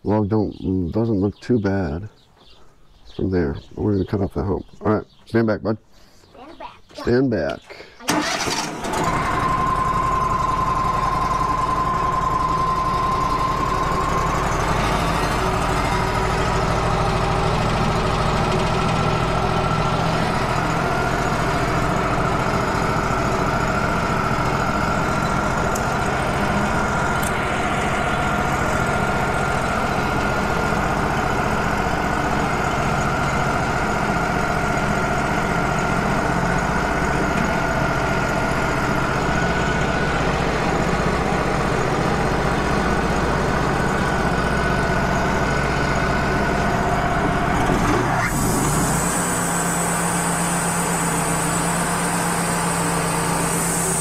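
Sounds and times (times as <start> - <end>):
sawmill engine droning: 8.1 - 54.0
bandsaw blade whining: 47.6 - 54.0.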